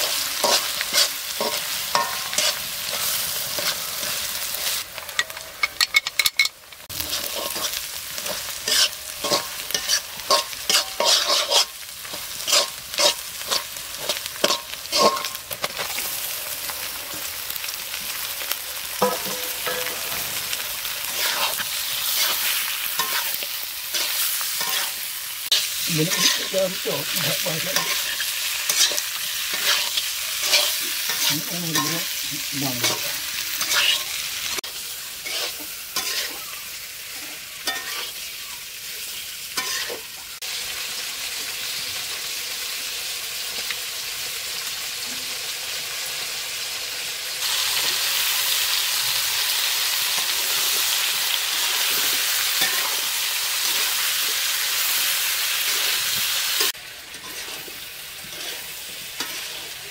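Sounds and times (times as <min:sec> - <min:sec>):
metal spatula scraping pan: 0:00.0 - 0:15.9, 0:19.0 - 0:34.6, 0:35.2 - 0:38.2, 0:39.6 - 0:40.0, 0:52.6 - 0:54.0, 0:56.6 - 0:59.9
meat sizzling in oil: 0:00.0 - 0:59.9.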